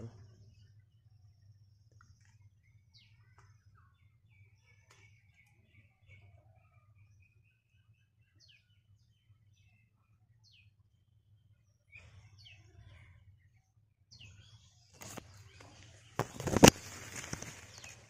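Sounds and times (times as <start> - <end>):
faint bird chirps: 0.0 - 18.0
soft rustling: 15.0 - 18.0.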